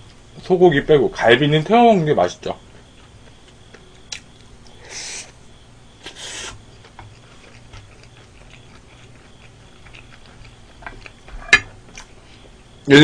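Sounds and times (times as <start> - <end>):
person chewing food: 2.7 - 4.9, 6.0 - 12.6
short breathy hisses: 4.8 - 5.4, 6.0 - 6.6.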